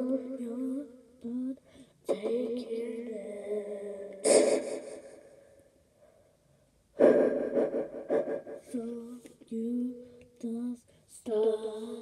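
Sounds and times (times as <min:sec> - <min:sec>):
girl gasping into microphone: 0:04.2 - 0:05.2, 0:07.0 - 0:08.8.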